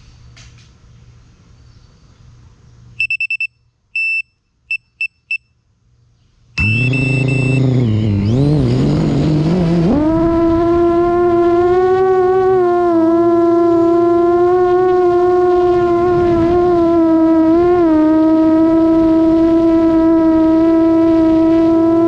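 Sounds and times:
high electronic beeps: 3.0s - 5.4s, 6.6s - 8.9s
quadcopter motors whining hum: 6.6s - 22.0s.

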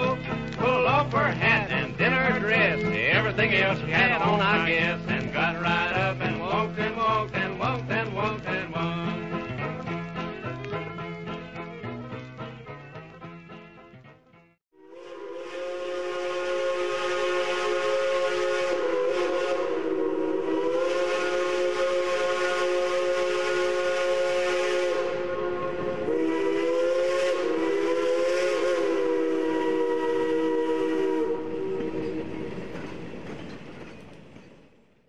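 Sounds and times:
steam locomotive chime whistle: 14.8s - 33.6s
steam hissing: 14.8s - 34.0s.

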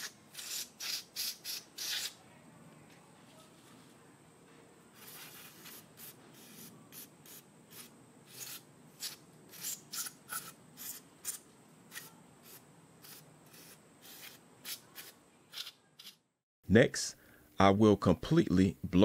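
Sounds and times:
scratchy hissing strokes: 0.0s - 2.2s, 4.9s - 16.2s.

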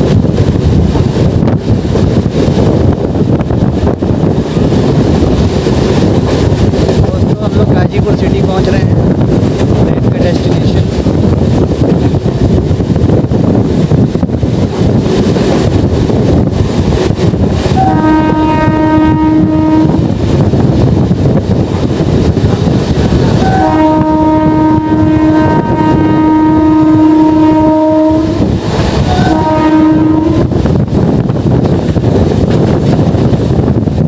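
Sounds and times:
train running noise: 0.0s - 34.0s
wind on microphone: 0.0s - 34.0s
train horn blasts: 17.8s - 20.1s, 23.4s - 28.5s, 29.1s - 30.6s.

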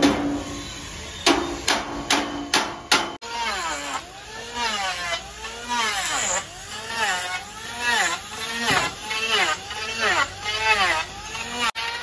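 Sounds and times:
hammer ringing on steel: 1.3s - 3.2s.

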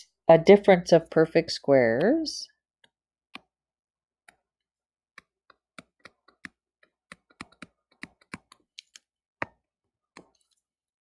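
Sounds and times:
stylus tapping on touchscreen: 5.2s - 10.4s.

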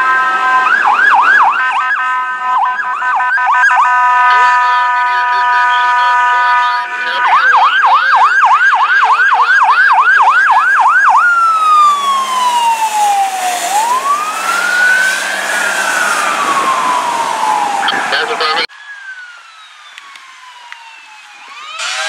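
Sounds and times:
electronic siren yelp and wail: 0.0s - 22.0s
truck horn blast: 1.4s - 7.6s.

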